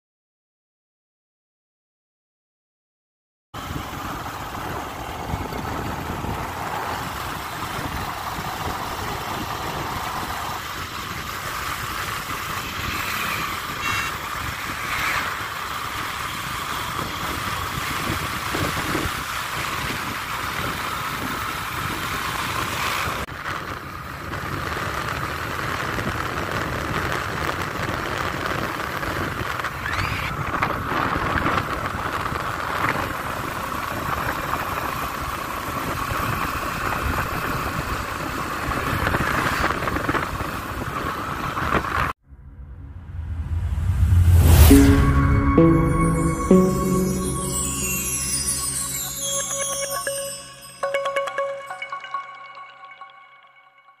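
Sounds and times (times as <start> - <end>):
motorbike engine: 3.6 - 33.4
road noise: 3.6 - 45.6.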